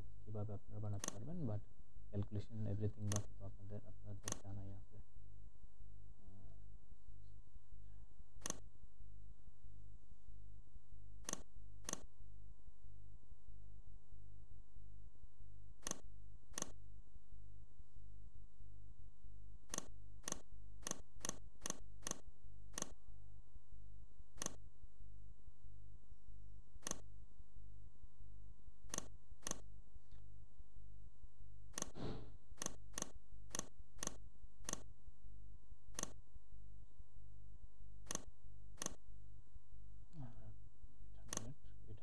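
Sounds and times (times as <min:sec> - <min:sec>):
low electrical hum: 0:00.0 - 0:42.0
computer mouse clicking: 0:01.0 - 0:01.2, 0:03.0 - 0:03.3, 0:04.2 - 0:04.5, 0:08.4 - 0:08.6, 0:11.2 - 0:12.1, 0:15.8 - 0:16.8, 0:19.7 - 0:23.0, 0:24.4 - 0:24.6, 0:26.8 - 0:27.1, 0:28.9 - 0:29.6, 0:31.7 - 0:34.9, 0:35.9 - 0:36.2, 0:38.0 - 0:39.0, 0:41.3 - 0:41.5.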